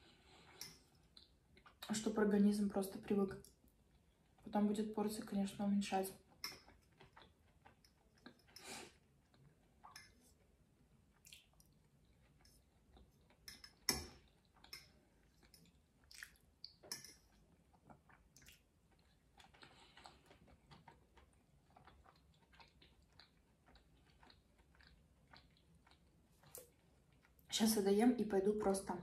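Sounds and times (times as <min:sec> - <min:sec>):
faint close-up chewing: 0:06.2 - 0:27.5.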